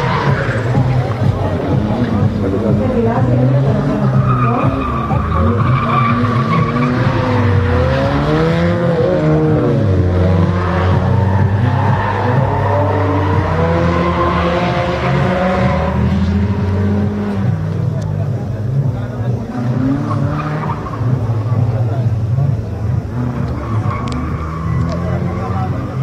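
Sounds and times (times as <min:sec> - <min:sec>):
car engines revving: 0:00.0 - 0:26.0
tyres screeching: 0:03.4 - 0:09.8, 0:10.4 - 0:17.6, 0:23.1 - 0:26.0.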